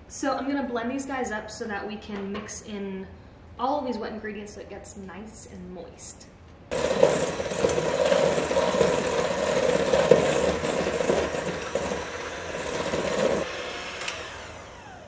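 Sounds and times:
electric hand mixer running: 6.7s - 15.0s.

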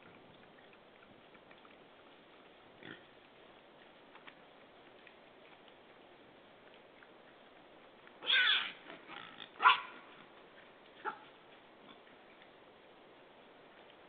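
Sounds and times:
boar rooting and chewing: 0.0s - 14.0s.

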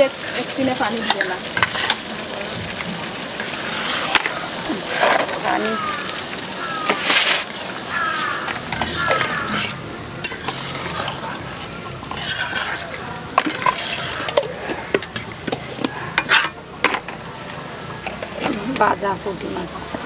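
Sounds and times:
water pouring: 0.0s - 17.6s
gravy sizzling: 0.0s - 20.0s
metal spatula scraping metal pot: 3.4s - 5.7s, 8.4s - 16.6s.

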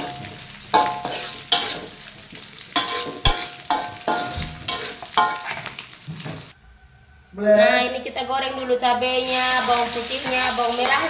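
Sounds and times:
metal spatula striking a wok: 0.0s - 2.0s, 2.8s - 5.5s
wok ringing: 0.0s - 5.6s
fish frying in oil: 0.0s - 6.5s, 9.2s - 11.0s.

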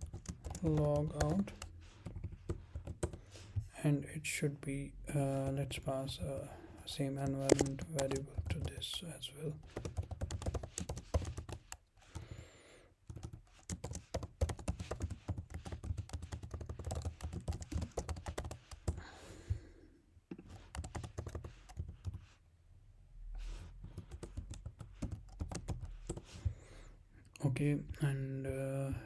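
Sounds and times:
computer keyboard typing: 0.0s - 3.2s, 7.2s - 12.2s, 13.1s - 19.1s, 20.4s - 22.3s, 23.8s - 26.4s.

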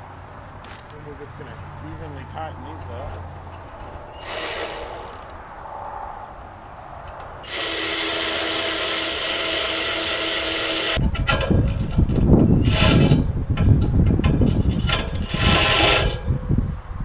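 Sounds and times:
cordless drill whirring: 4.2s - 5.4s, 7.5s - 11.0s.

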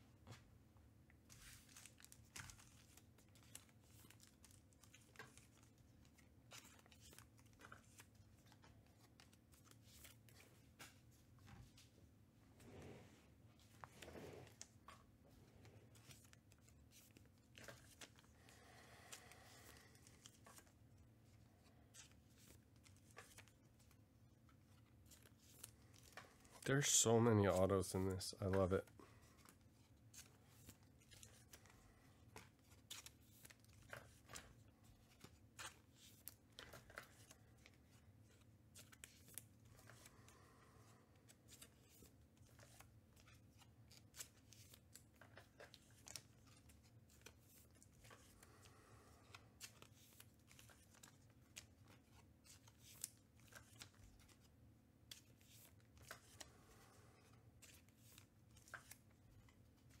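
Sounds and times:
cards sliding and flicking: 41.2s - 60.0s.

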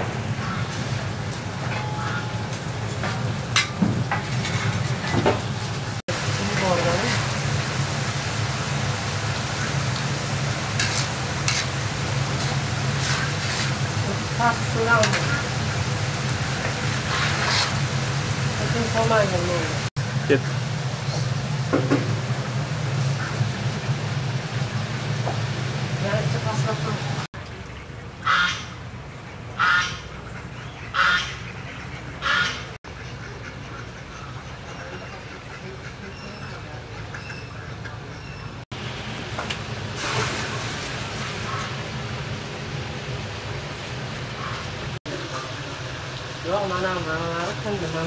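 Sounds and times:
metal skimmer scraping: 1.6s - 5.7s
duck quacking: 28.2s - 28.8s, 29.6s - 38.4s
broth bubbling and hissing: 39.7s - 42.1s.

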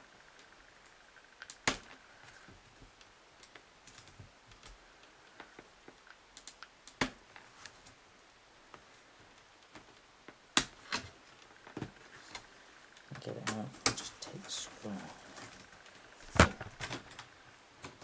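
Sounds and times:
plastic connectors clicking: 5.5s - 7.2s.

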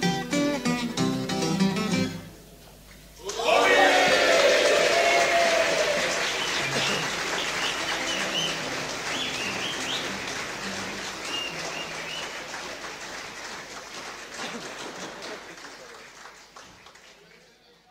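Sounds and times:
high-pitched cheers: 3.2s - 10.2s
audience applauding: 3.2s - 17.7s.

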